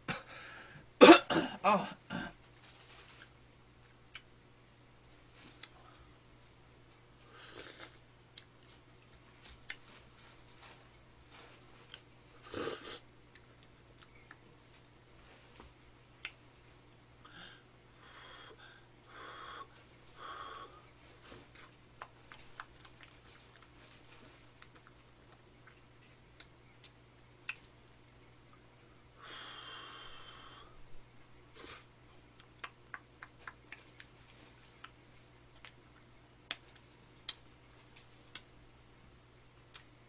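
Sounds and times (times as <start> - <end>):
person breathing through nose: 29.2 - 30.8.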